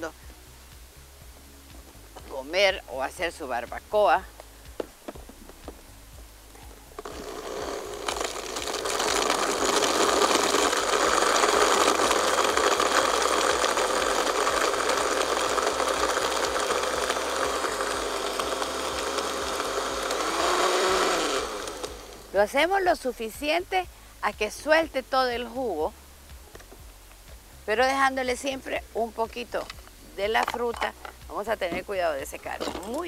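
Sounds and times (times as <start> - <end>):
blender whirring with ice: 7.0 - 22.4.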